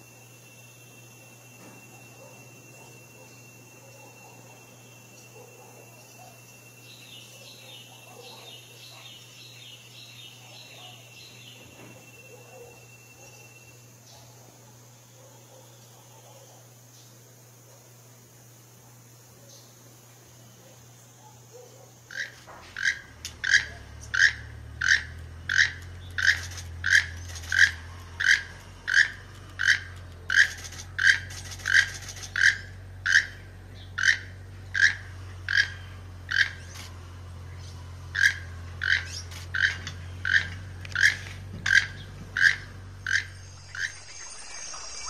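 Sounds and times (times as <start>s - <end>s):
toucan croaking calls: 21.9s - 37.0s, 38.0s - 45.0s.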